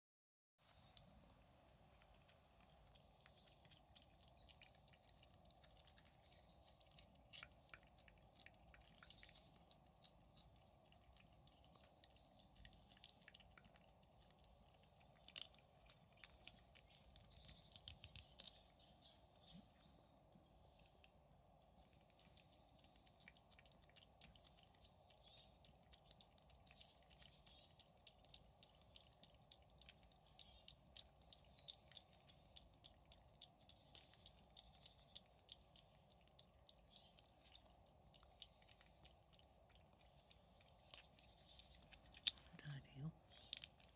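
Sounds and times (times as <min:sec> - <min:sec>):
cat licking wet clicks: 0:00.9 - 0:19.3, 0:20.7 - 0:43.9.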